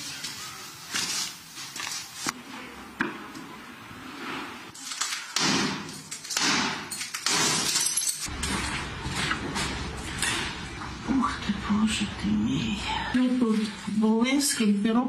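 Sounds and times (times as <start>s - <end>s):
debris and broken glass clattering: 5.9s - 8.7s.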